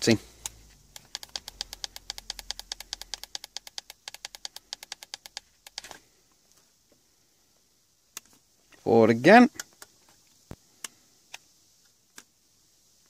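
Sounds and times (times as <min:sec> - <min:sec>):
radio channel selector clicking: 0:00.4 - 0:06.0.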